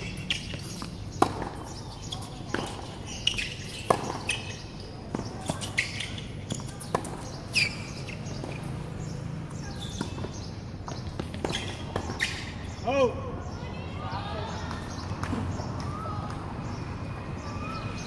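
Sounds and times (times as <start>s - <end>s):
ball bouncing on court: 0.0s - 8.7s, 9.7s - 12.5s
birds chirping: 0.0s - 18.0s
racket striking tennis ball: 0.3s - 1.8s, 2.5s - 5.6s.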